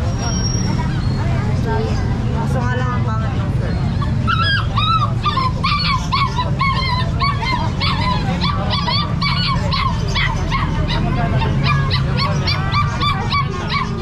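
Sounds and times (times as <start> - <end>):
puppies yelping and whining: 3.7 - 14.0.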